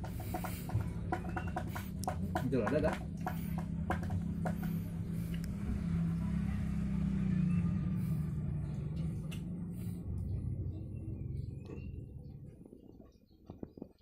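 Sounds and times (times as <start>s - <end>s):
engine humming: 0.0s - 14.0s.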